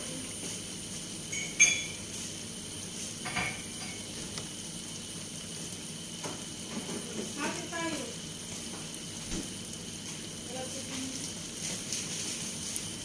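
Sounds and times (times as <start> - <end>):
food sizzling in pan: 0.0 - 13.0
metallic clink: 1.3 - 2.0.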